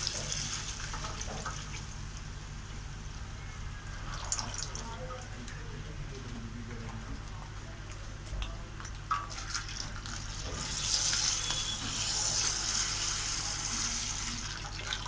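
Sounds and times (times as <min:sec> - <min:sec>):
milk pouring into a pot: 0:06.7 - 0:15.0.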